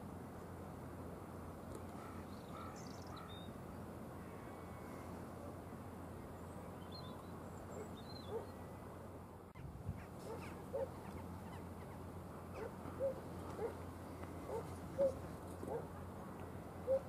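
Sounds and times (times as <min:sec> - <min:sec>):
bird calling: 0:09.6 - 0:13.8, 0:14.4 - 0:15.8.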